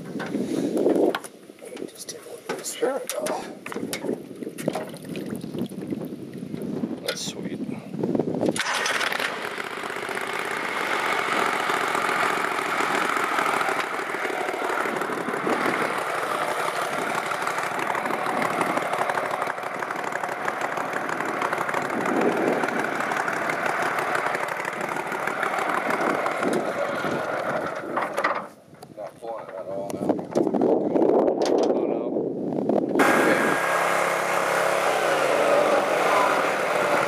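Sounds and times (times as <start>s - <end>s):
boat motor running: 8.5s - 28.5s, 33.0s - 37.0s.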